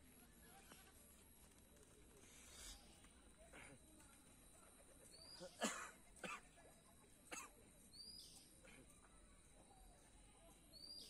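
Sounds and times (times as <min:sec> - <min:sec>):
faint high chirp: 0:07.8 - 0:11.0.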